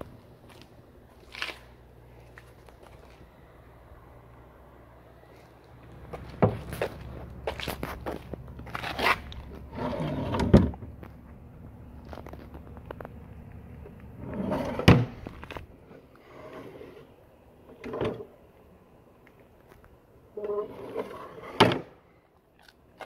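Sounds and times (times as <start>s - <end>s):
wooden drawers sliding: 8.8s - 10.8s, 14.2s - 17.1s, 17.7s - 18.3s, 20.4s - 22.0s.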